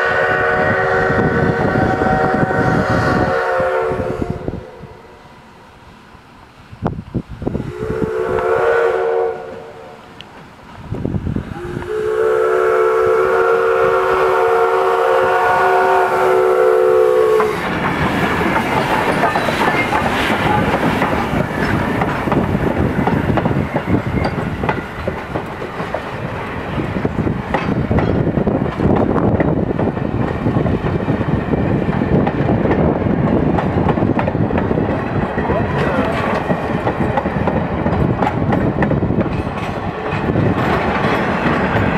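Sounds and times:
steam whistle blasts: 0:00.0 - 0:05.5, 0:07.6 - 0:10.0, 0:11.5 - 0:17.6
train rumbling past: 0:00.0 - 0:41.9
wheels clicking over rail joints: 0:17.4 - 0:41.9.

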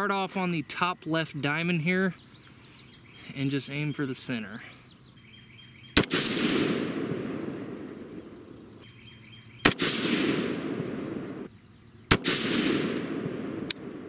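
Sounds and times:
rifle shots with echo: 0:05.9 - 0:08.8, 0:09.6 - 0:11.5, 0:12.1 - 0:14.0.

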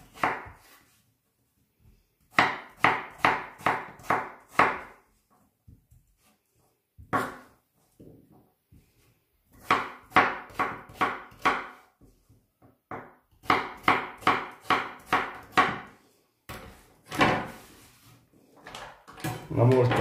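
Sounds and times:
knife chopping on wooden board: 0:00.0 - 0:00.8, 0:02.3 - 0:05.0, 0:07.0 - 0:07.5, 0:09.5 - 0:11.9, 0:12.9 - 0:15.9.

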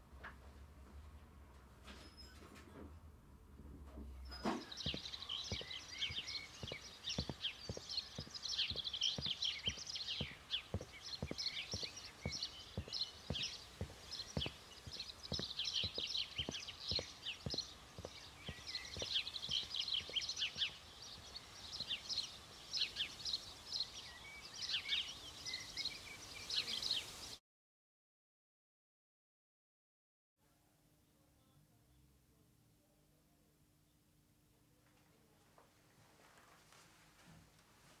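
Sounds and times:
footsteps on wooden walkway: 0:03.8 - 0:22.5
small birds chirping: 0:04.1 - 0:27.4.

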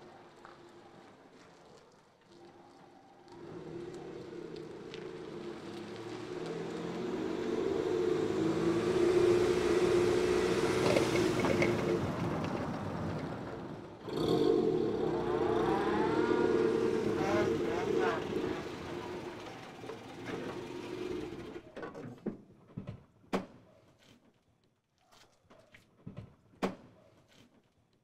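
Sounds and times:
car driving past: 0:03.3 - 0:21.6.

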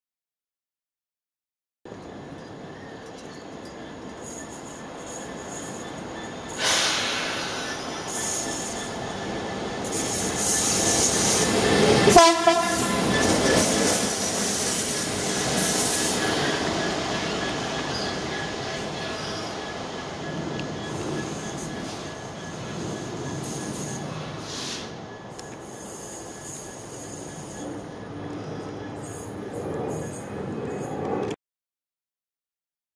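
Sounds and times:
diesel locomotive engine: 0:01.9 - 0:31.4
train wheels on rails: 0:01.9 - 0:31.4
locomotive horn: 0:12.1 - 0:13.1.

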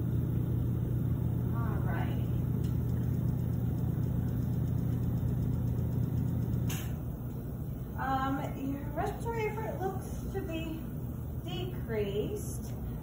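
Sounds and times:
low machine hum: 0:00.0 - 0:13.0
sharp click: 0:06.5 - 0:07.0.

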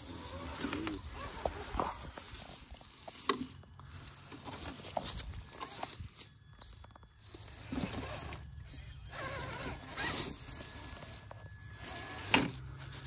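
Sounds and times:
rc car motor whirring: 0:00.0 - 0:05.9, 0:07.2 - 0:13.0
tyres crunching dry leaves: 0:00.1 - 0:08.5.

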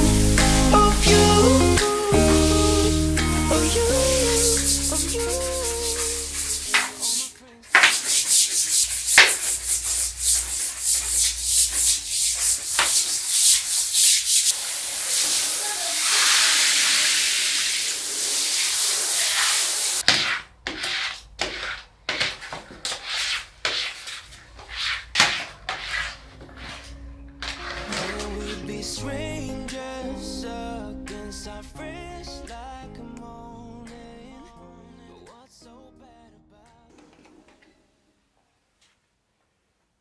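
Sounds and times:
steady hiss: 0:00.0 - 0:20.0
brush scrubbing wet tile floor: 0:01.8 - 0:28.7.

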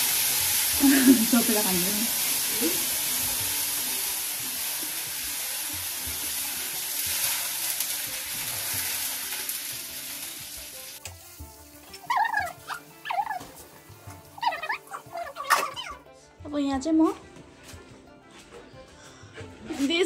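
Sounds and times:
food sizzling in a pan: 0:00.0 - 0:16.0.

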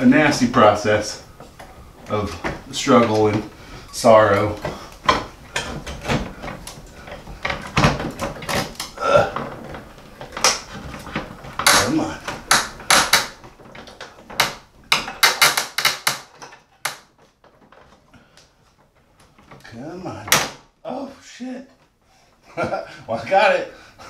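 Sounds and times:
plastic clattering and knocking: 0:04.5 - 0:19.6.

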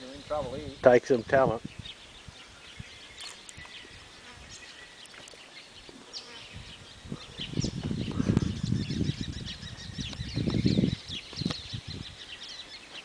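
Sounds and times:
fly buzzing: 0:02.2 - 0:08.6.

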